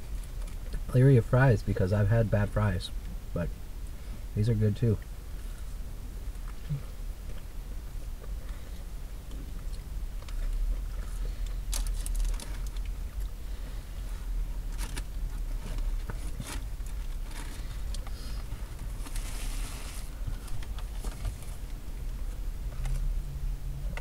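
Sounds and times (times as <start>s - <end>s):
steady low rumble: 0.0s - 24.0s
paper wrapper crackling: 11.7s - 12.9s.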